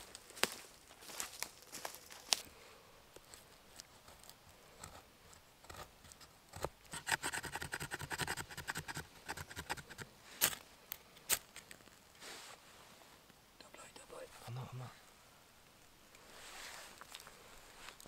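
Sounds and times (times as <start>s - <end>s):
knife scraping stick: 6.9s - 10.6s.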